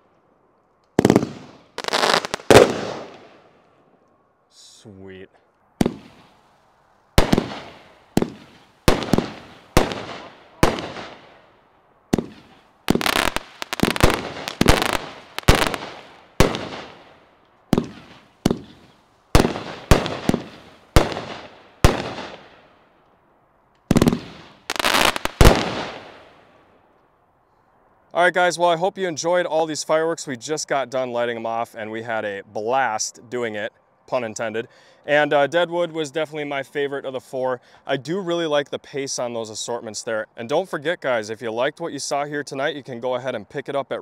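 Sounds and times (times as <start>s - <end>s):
fireworks banging: 1.0s - 3.4s, 5.8s - 6.4s, 7.2s - 11.4s, 12.1s - 22.6s, 23.9s - 26.3s.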